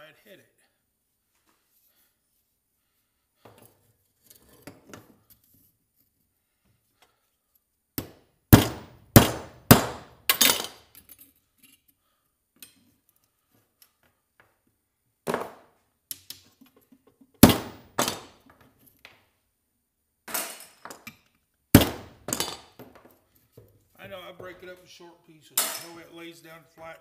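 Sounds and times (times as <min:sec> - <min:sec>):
hammer striking copper: 0:08.0 - 0:10.5, 0:17.4 - 0:18.2.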